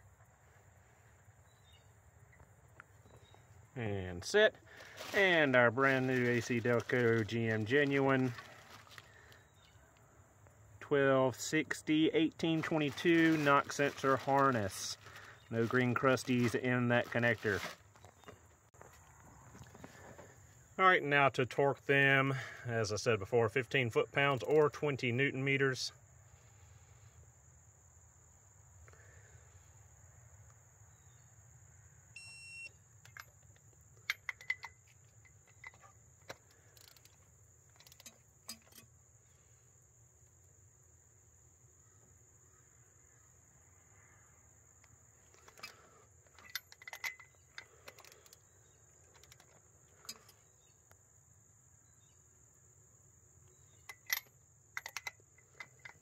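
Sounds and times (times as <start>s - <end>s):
faint high-pitched whine: 0.0s - 56.0s
short electronic beep: 32.2s - 32.7s
wrench and socket clicks: 33.0s - 38.9s, 46.4s - 48.4s, 53.8s - 56.0s.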